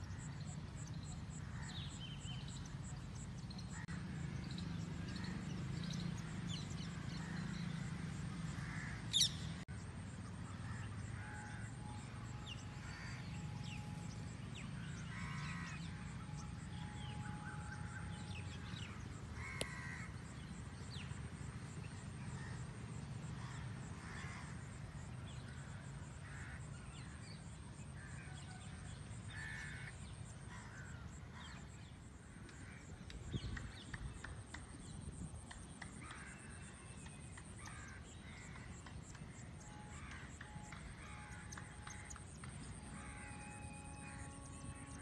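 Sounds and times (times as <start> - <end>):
crows cawing: 8.6 - 9.3, 12.8 - 13.3, 15.0 - 15.8, 19.4 - 20.2, 23.4 - 24.7, 25.6 - 27.2, 29.3 - 31.6, 36.0 - 36.8, 37.6 - 40.4, 41.0 - 43.5.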